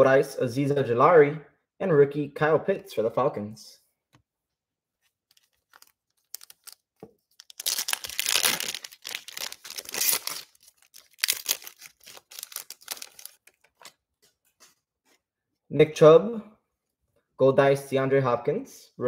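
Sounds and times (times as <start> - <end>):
foil wrapper tearing and crinkling: 5.3 - 14.0.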